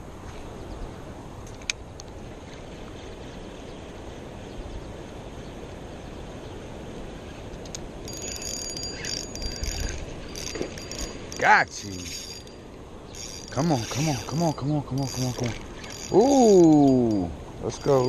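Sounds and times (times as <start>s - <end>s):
outdoor background noise: 0.0s - 18.0s
fishing reel whirring: 8.0s - 18.0s.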